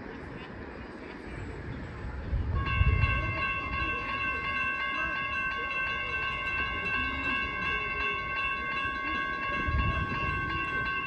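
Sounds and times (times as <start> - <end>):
crossing warning bell ringing: 2.5 - 11.0.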